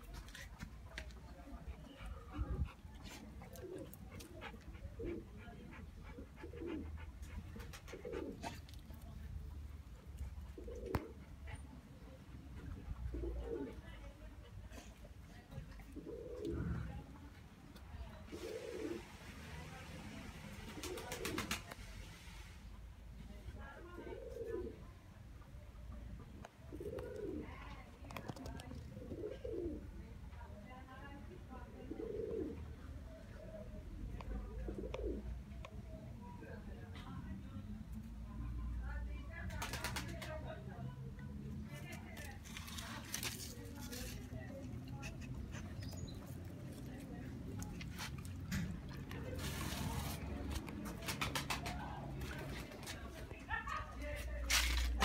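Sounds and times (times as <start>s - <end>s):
pigeons cooing: 3.4s - 8.7s, 10.5s - 11.6s, 12.7s - 13.9s, 15.8s - 17.1s, 18.3s - 19.0s, 24.0s - 24.8s, 26.6s - 27.6s, 28.8s - 30.0s, 31.8s - 32.8s, 34.5s - 35.5s.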